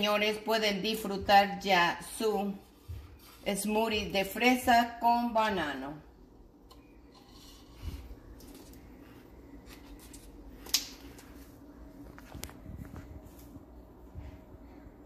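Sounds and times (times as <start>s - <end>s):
plastic cups rustling: 7.0s - 12.6s.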